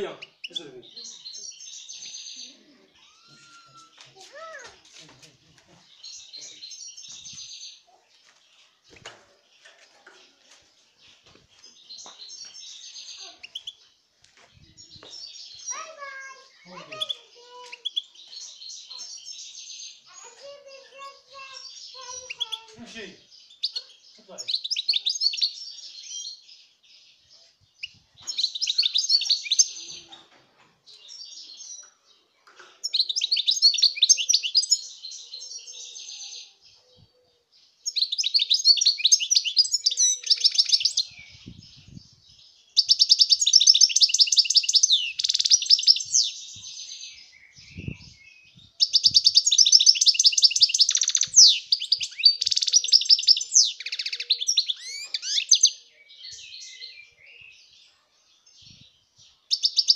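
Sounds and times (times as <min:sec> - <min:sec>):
goldfinch singing: 0:14.8 - 0:26.5, 0:37.8 - 0:57.5.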